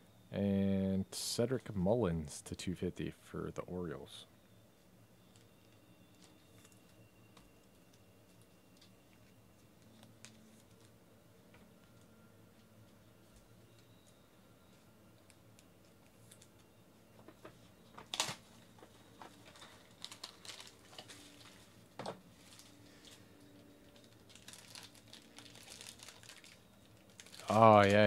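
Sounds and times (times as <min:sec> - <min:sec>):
foil wrapper crinkling: 0:18.0 - 0:18.5, 0:19.1 - 0:28.0.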